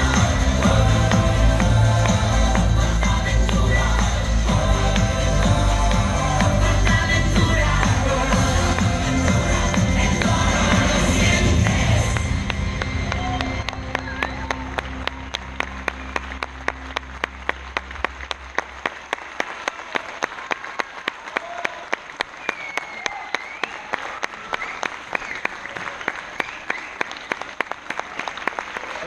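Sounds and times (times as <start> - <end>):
audience clapping in unison: 0.0 - 29.0
cheers and whistles: 13.1 - 16.1, 21.4 - 27.4.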